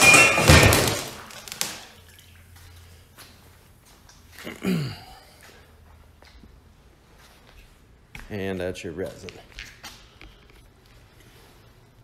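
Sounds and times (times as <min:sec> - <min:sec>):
heavy tank crashing on concrete: 0:00.0 - 0:01.4.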